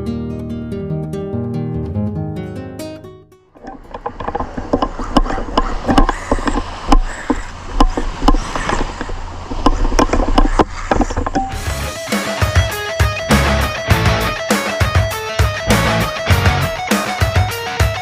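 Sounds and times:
wind rumble on microphone: 0:03.6 - 0:11.6.

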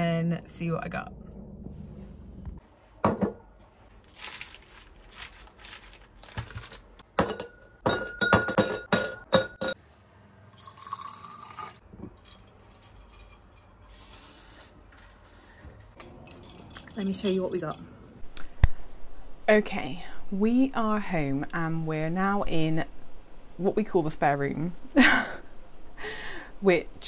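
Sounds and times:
glass knocking on worktop: 0:03.0 - 0:03.4.

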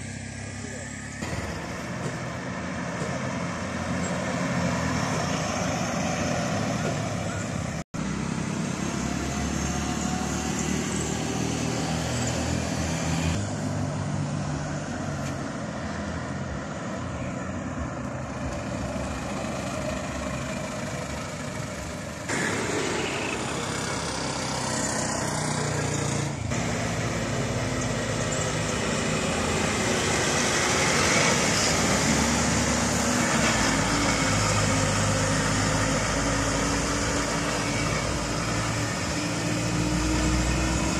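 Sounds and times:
bus engine: 0:00.0 - 0:40.9
vehicles driving past: 0:00.0 - 0:40.9.

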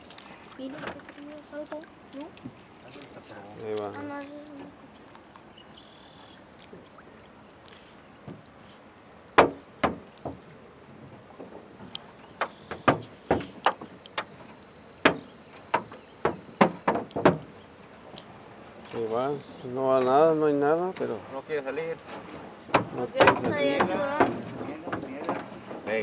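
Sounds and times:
insects chirring: 0:00.0 - 0:26.0
knocks against fishing boat: 0:09.4 - 0:10.5, 0:11.3 - 0:14.4, 0:15.0 - 0:17.6, 0:22.1 - 0:26.0.

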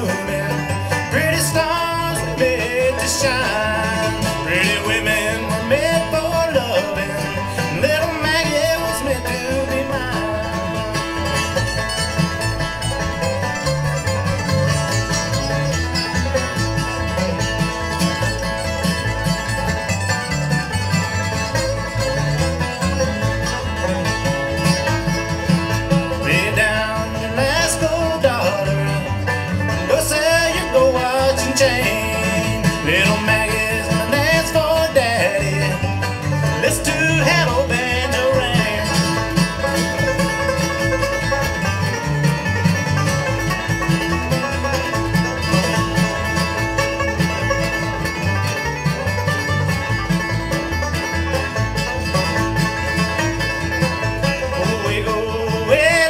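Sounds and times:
acoustic guitar strumming: 0:00.0 - 0:56.0
banjo picking: 0:00.0 - 0:56.0
gliding melodic lead line: 0:00.0 - 0:56.0.

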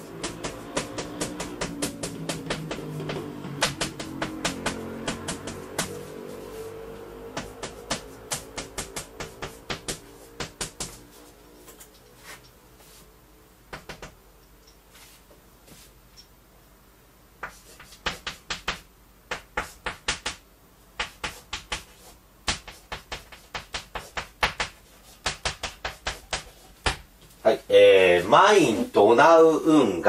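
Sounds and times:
chalk writing on blackboard: 0:00.0 - 0:13.1, 0:14.9 - 0:15.9, 0:17.4 - 0:20.4, 0:21.0 - 0:27.0.

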